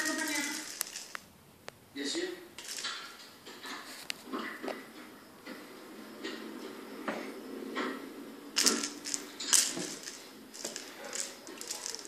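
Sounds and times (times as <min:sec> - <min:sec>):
toy clattering on tiles: 0:00.0 - 0:01.3, 0:02.6 - 0:04.2, 0:08.6 - 0:12.0.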